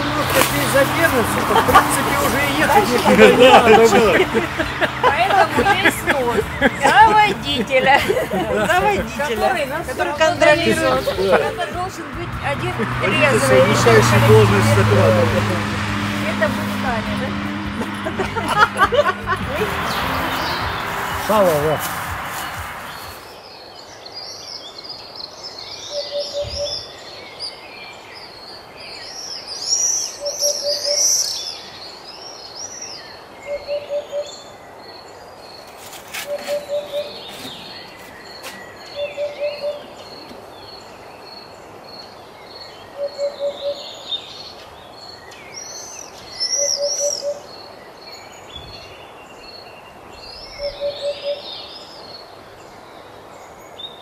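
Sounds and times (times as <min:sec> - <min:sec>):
songbirds chirping and trilling: 0:00.0 - 0:54.0
low hooting bird call: 0:38.9 - 0:40.0.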